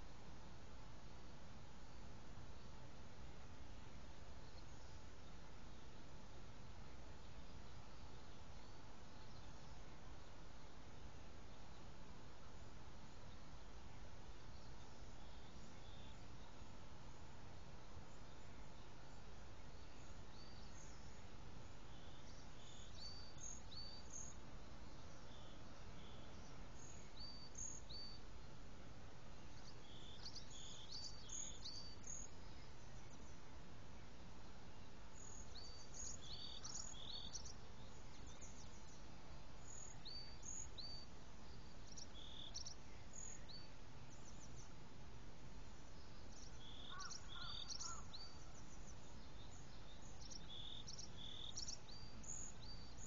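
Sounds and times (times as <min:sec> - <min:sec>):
birds chirping: 0:45.8 - 0:53.0.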